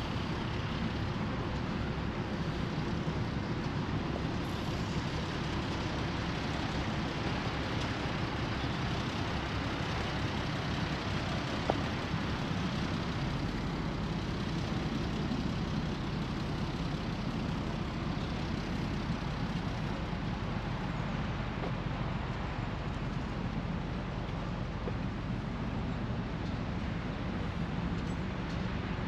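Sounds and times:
engine running: 0.0s - 29.0s.

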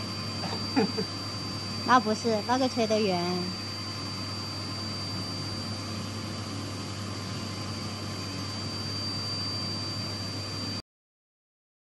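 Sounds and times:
low hum: 0.0s - 9.0s
high whine: 0.0s - 10.8s.

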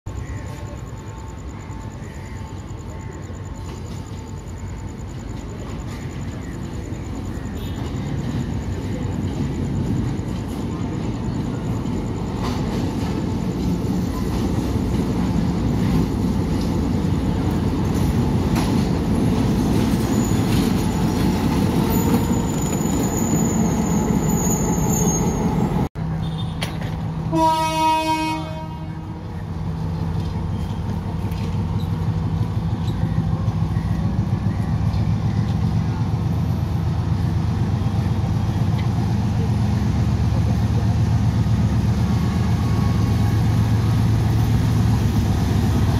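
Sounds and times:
diesel locomotive engines running: 0.1s - 45.9s
train running into station: 0.1s - 45.9s
train horn blast: 27.3s - 29.4s.

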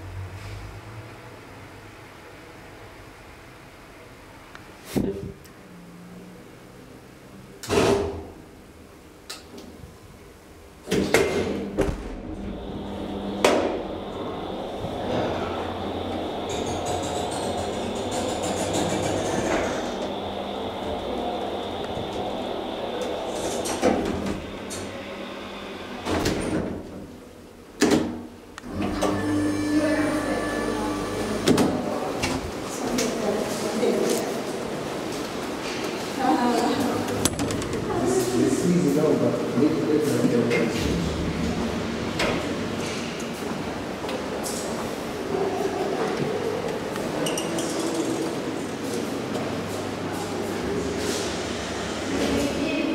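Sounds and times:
elevator hum with high whine: 0.0s - 52.9s
elevator clunks and thud: 10.9s - 25.0s, 37.0s - 38.1s
hydraulic pump motor humming: 11.8s - 26.3s.

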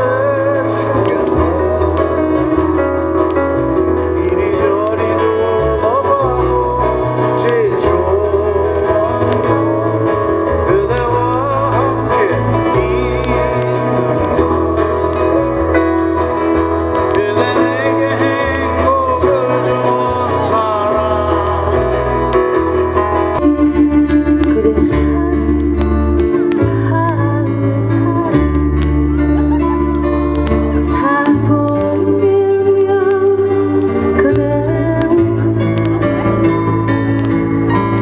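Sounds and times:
man singing: 0.0s - 23.5s, 24.2s - 29.9s, 30.8s - 37.0s
acoustic guitar: 0.0s - 38.0s
bass line: 0.0s - 38.0s
woman singing: 24.4s - 29.0s, 30.9s - 36.0s.

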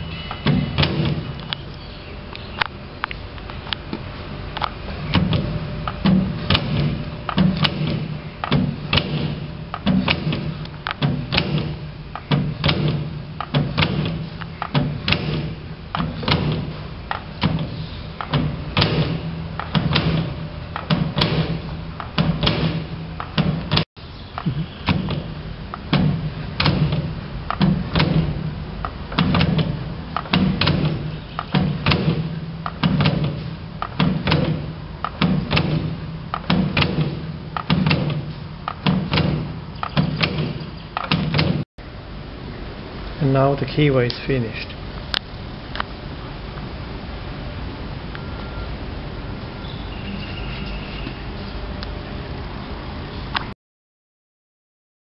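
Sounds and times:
broach knocks and clunks: 5.1s - 41.6s.

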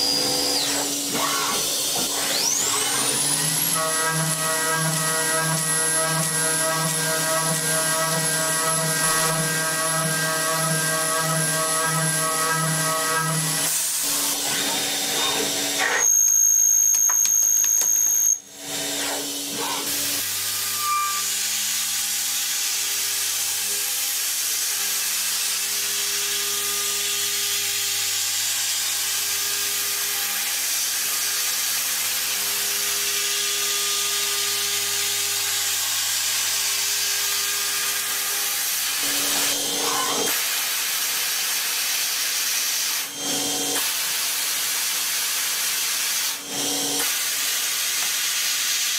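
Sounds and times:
machine drilling: 0.0s - 20.3s, 38.2s - 40.4s.

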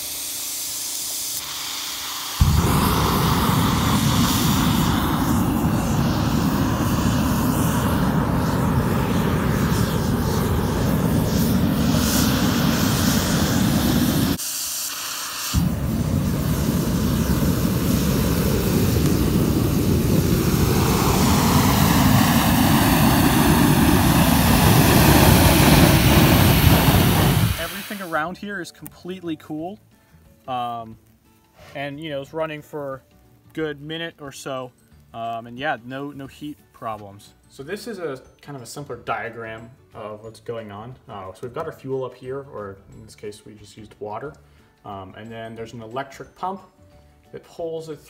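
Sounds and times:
rocket engine blast: 1.4s - 14.4s, 15.0s - 28.3s.

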